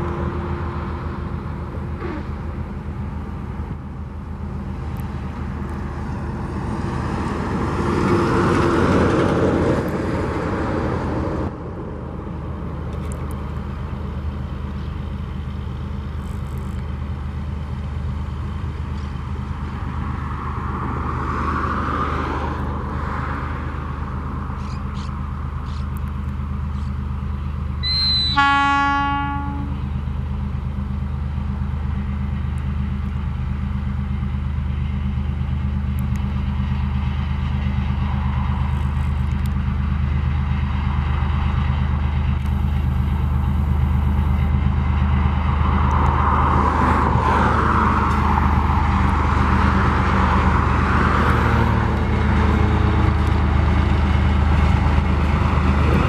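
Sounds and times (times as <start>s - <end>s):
diesel locomotive running: 0.0s - 56.0s
rumbling wheel and rail noise: 0.0s - 56.0s
locomotive horn blast: 27.8s - 29.9s.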